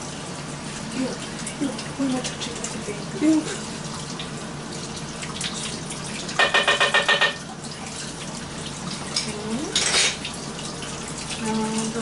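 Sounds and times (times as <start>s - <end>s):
tap running into sink: 5.3s - 7.5s.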